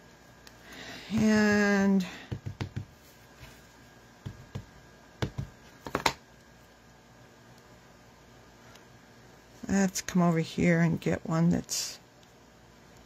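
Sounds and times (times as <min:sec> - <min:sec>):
ink pad tapping on rubber stamp: 0:02.3 - 0:03.0, 0:04.2 - 0:06.2.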